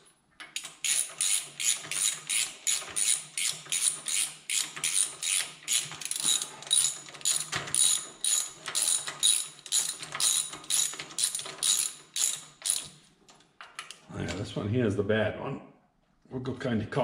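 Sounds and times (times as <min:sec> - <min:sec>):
socket ratchet clicking: 0:00.6 - 0:12.9.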